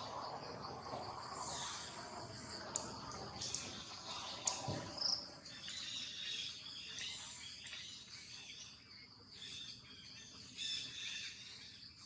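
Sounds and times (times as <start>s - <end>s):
high insect drone: 0.0s - 7.1s.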